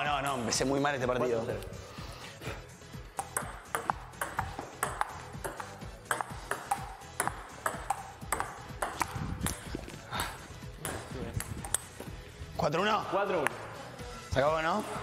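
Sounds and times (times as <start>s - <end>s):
background music: 0.0s - 15.0s
ping-pong ball clicking: 3.2s - 9.7s, 10.8s - 12.0s.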